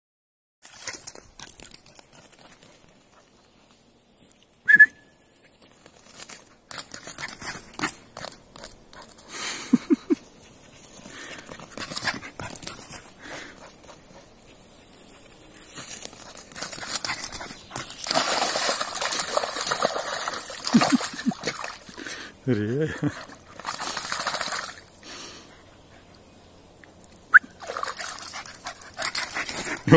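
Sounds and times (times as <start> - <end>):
dog splashing through puddle: 0.6 - 2.6, 15.8 - 22.1, 23.2 - 25.0, 27.6 - 29.9
short sharp whistle: 4.7 - 5.1, 27.3 - 27.5.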